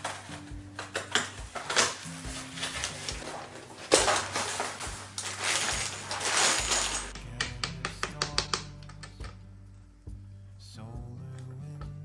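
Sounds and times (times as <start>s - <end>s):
cardboard and plastic rustling: 0.0s - 7.2s
soft background music: 0.0s - 12.0s.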